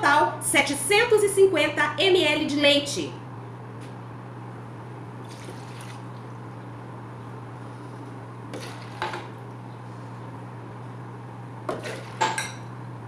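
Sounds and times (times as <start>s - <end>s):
steady low hum: 0.0s - 13.0s
glasses clinking on stone countertop: 11.7s - 12.7s.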